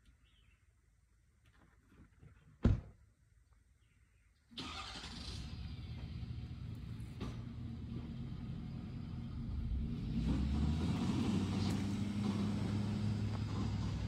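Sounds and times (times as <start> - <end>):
vehicle engine running: 5.3 - 14.0.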